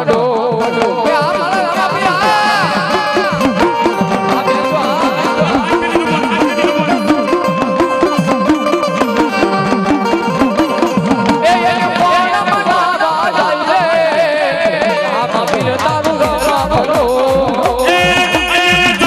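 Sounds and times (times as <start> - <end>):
man singing: 0.0 - 8.2, 11.2 - 19.0
hand drums beating: 0.0 - 19.0
held melody tones: 1.4 - 13.0.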